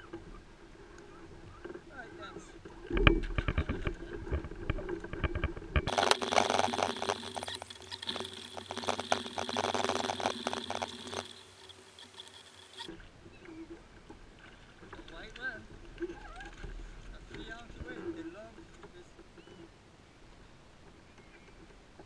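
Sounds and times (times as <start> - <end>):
sped-up clicks and splashes: 3.0 - 12.9.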